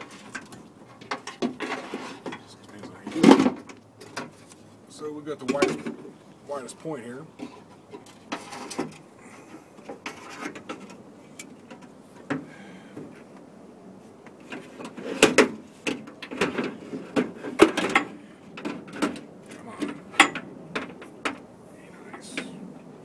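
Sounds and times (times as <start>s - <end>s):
metal rail scraping and clanking: 0.0s - 4.4s, 7.4s - 11.0s, 14.4s - 21.1s.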